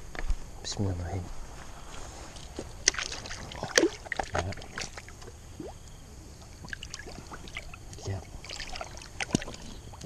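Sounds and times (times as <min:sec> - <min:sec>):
water sloshing and splashing: 0:02.3 - 0:10.0.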